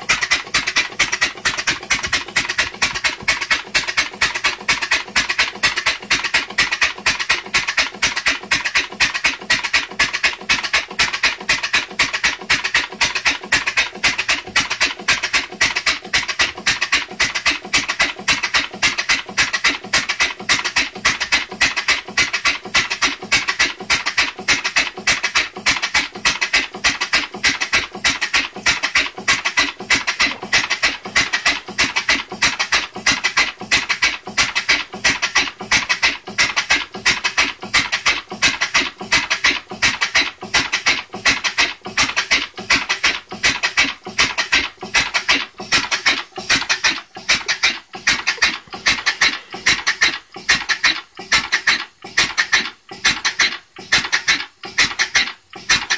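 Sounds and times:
hissing exhaust puffs: 27.1s - 55.9s.

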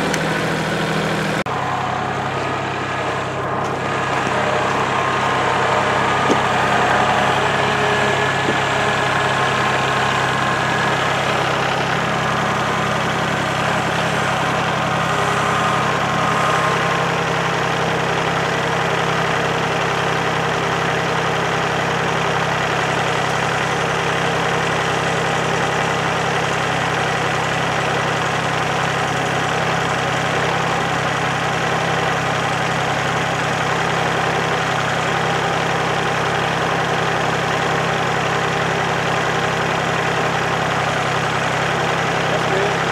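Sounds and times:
tractor diesel engine running: 0.0s - 42.9s.

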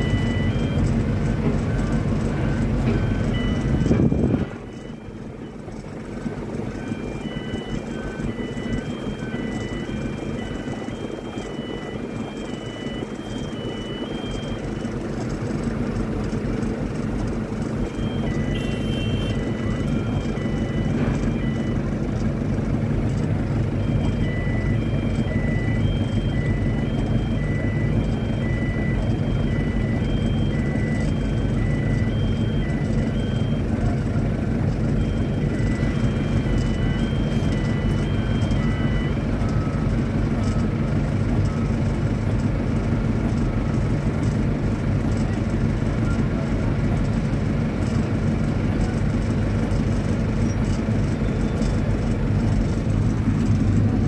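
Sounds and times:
electronic beeping tune: 0.0s - 15.2s, 17.8s - 21.9s, 23.7s - 34.2s, 34.8s - 39.9s.

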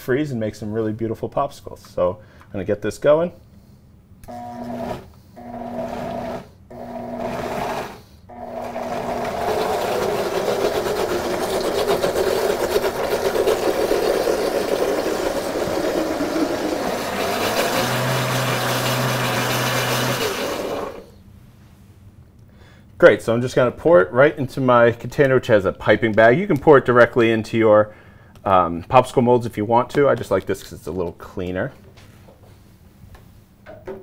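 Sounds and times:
blender motor running: 4.3s - 21.2s.

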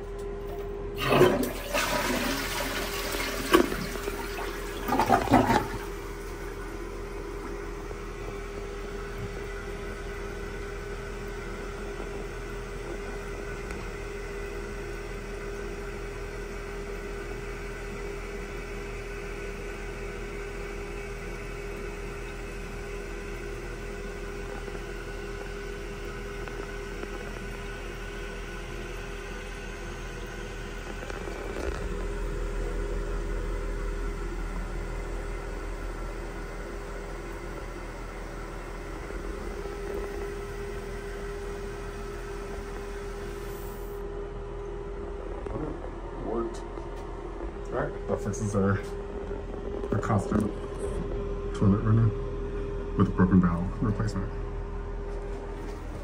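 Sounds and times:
toilet flushing: 0.5s - 44.0s.

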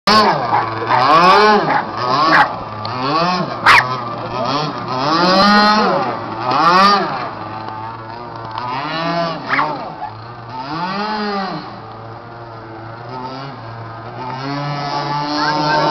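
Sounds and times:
model boat motor revving: 0.1s - 15.9s.

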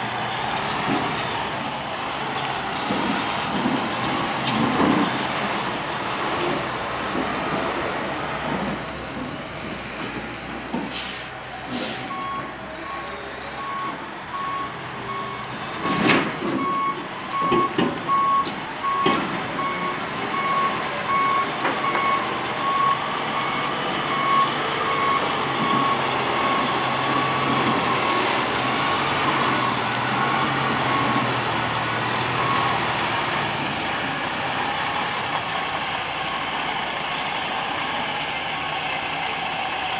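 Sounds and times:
truck diesel engine running: 0.0s - 39.9s
short sharp hisses: 10.4s - 12.1s
reversing alarm beeping: 11.0s - 28.4s, 29.4s - 31.3s, 32.3s - 33.0s.

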